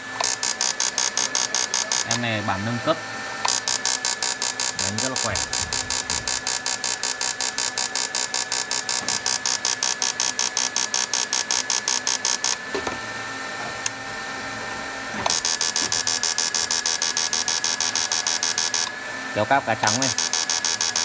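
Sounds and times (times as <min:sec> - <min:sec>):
steady whine: 0:00.0 - 0:11.5
inverter buzzing in pulses: 0:00.0 - 0:21.0.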